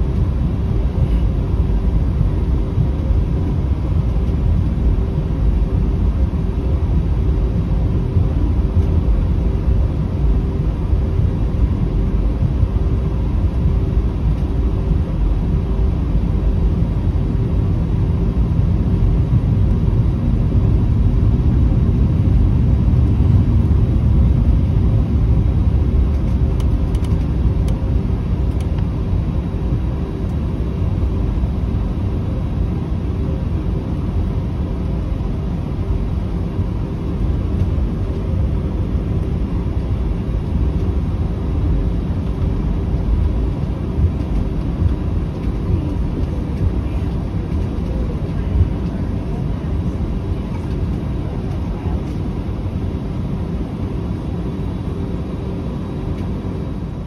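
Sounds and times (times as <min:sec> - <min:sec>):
aircraft cabin rumble: 0:00.0 - 0:57.0
faint steady hum: 0:00.0 - 0:57.0.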